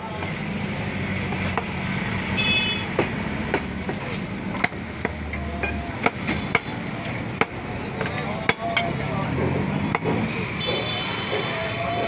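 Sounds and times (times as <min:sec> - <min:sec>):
cleaver chopping on wooden block: 0:02.9 - 0:06.7.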